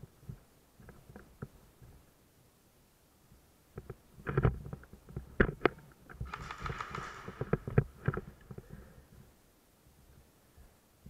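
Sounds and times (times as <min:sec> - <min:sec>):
footsteps: 0:06.2 - 0:08.8.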